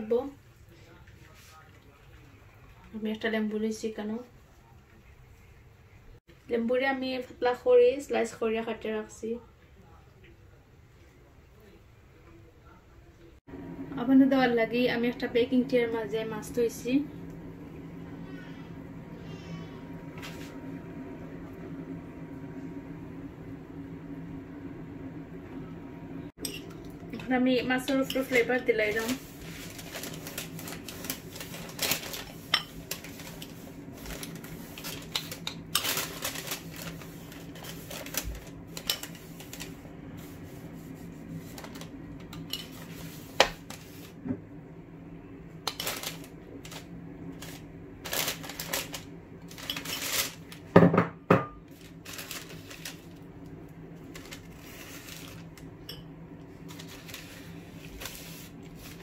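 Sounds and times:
steady low hum: 0:13.5 - 0:50.8, 0:51.6 - 0:59.0.

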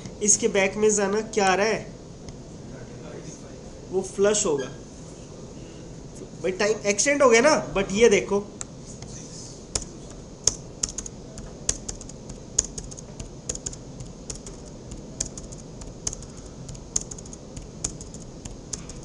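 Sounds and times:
keyboard typing clicks: 0:09.7 - 0:19.0.

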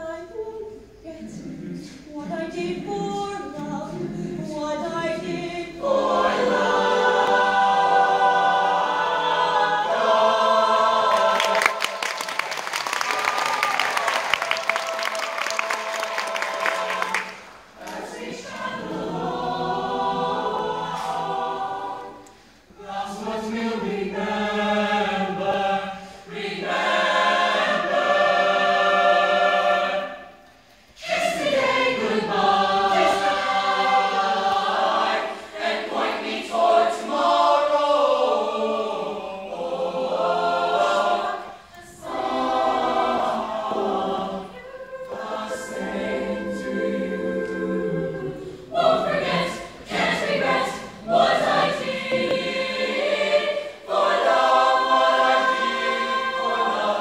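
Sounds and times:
choir singing a ballad: 0:00.0 - 0:57.0
audience clapping and cheering: 0:11.0 - 0:18.2.

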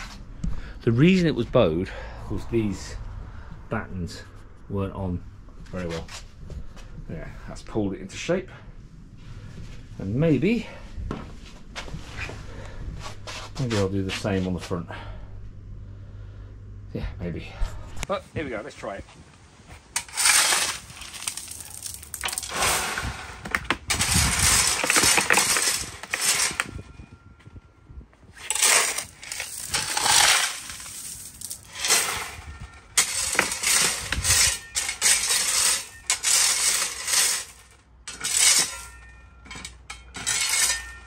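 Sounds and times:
gravel rattling on a mesh sieve: 0:20.0 - 0:26.8, 0:28.4 - 0:38.9, 0:40.2 - 0:40.8.

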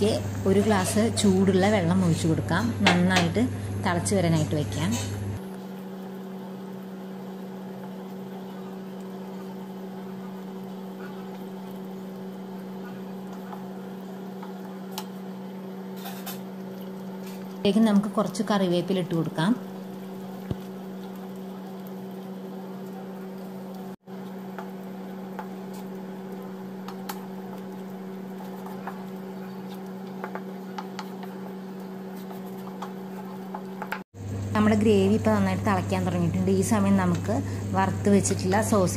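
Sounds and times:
steady low hum: 0:00.0 - 0:38.9
thick gravy bubbling in a pan: 0:05.4 - 0:34.3.

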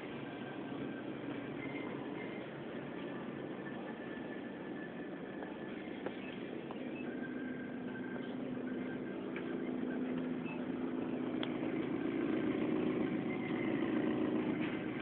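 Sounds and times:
refrigeration machinery humming: 0:00.0 - 0:15.0.

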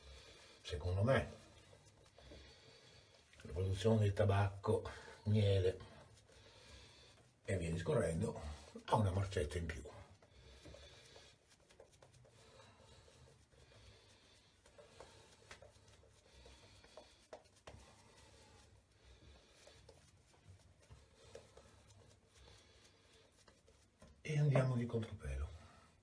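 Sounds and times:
shaving brush swishing: 0:00.0 - 0:26.0.

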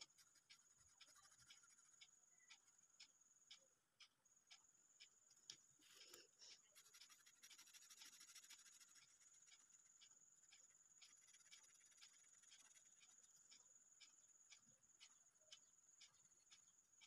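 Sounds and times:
marker scratching on paper: 0:05.8 - 0:09.6, 0:11.2 - 0:12.9.

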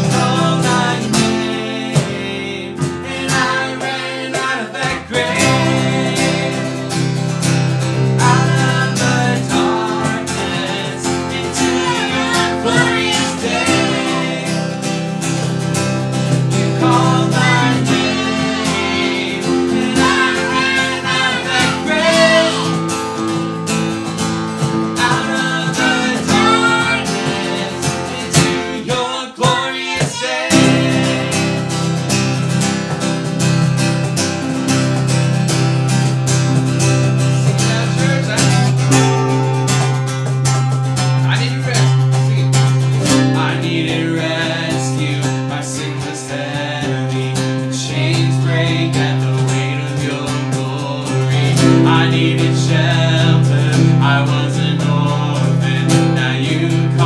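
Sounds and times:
person singing: 0:00.0 - 0:07.4, 0:08.0 - 0:15.2, 0:16.3 - 0:23.0, 0:25.0 - 0:31.9, 0:42.3 - 0:57.0
digital piano: 0:00.0 - 0:28.8
cajon beat: 0:00.0 - 0:57.0
strummed acoustic guitar: 0:00.0 - 0:57.0.

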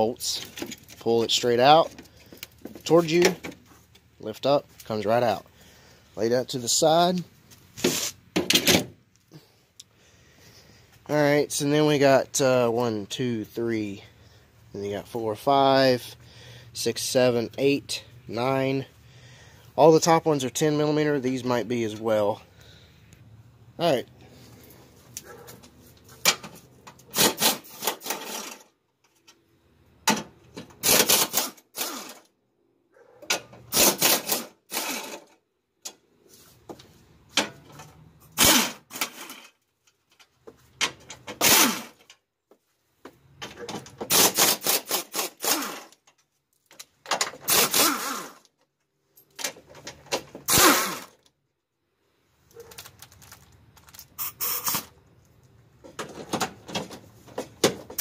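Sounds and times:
power driver spinning out bolts: 0:26.3 - 0:28.7, 0:33.3 - 0:35.4, 0:41.0 - 0:42.1, 0:43.6 - 0:46.0, 0:47.2 - 0:48.4, 0:49.9 - 0:51.2.

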